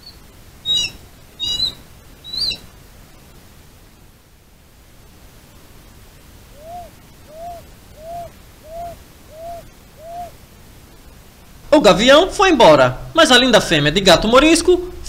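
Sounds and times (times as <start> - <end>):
bird hooting: 0.0 - 2.7, 6.5 - 10.4.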